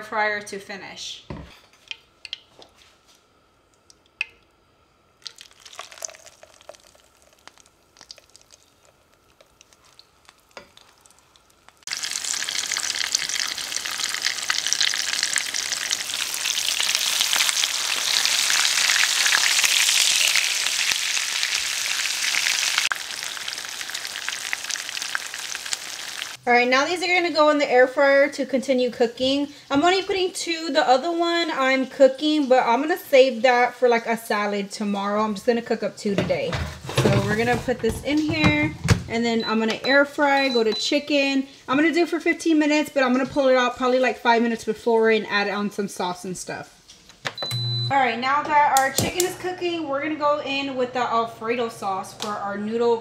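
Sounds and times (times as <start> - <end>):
chicken sizzling in hot oil: 5.2 - 26.4.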